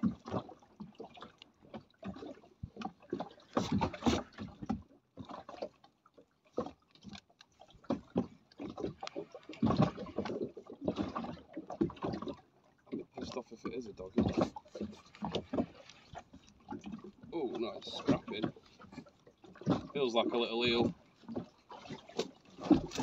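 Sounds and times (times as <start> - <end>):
water sloshing against boat hull: 0.0 - 23.0.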